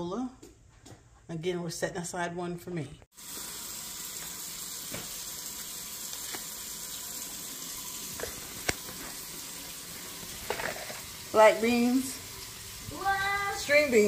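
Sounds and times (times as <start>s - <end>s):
oil sizzling in a frying pan: 3.1s - 14.0s
oil popping and spitting: 8.1s - 9.2s, 10.2s - 11.2s.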